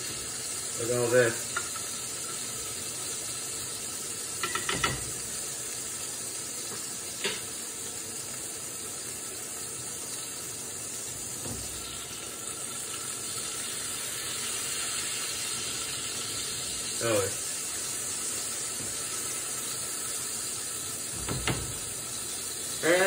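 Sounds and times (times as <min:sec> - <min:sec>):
food sizzling in a frying pan: 0:00.0 - 0:23.0
utensil knocking against pan: 0:04.4 - 0:05.1, 0:21.2 - 0:21.8.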